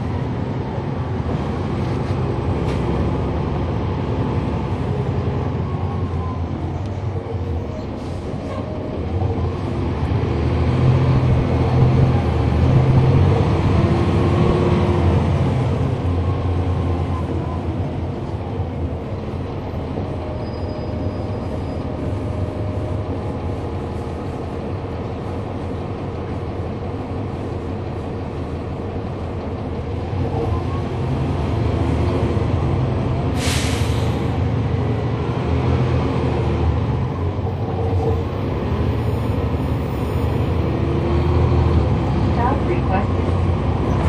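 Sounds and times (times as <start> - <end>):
bus diesel engine running: 0.0 - 44.0
hiss of air: 33.4 - 34.3.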